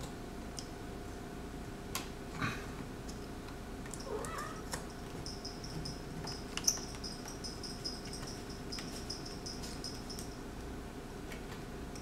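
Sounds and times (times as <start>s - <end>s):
cat meowing: 4.1s - 4.7s.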